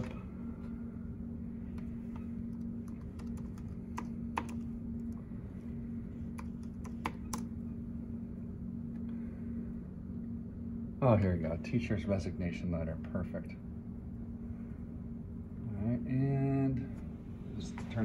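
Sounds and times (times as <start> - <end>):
steady low hum: 0.0 - 18.0
laptop keyboard typing: 1.7 - 5.2, 6.3 - 7.5.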